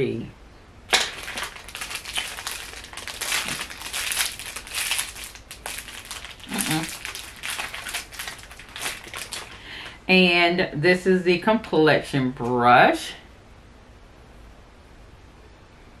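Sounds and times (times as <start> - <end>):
plastic packaging crinkling: 0.9 - 10.0.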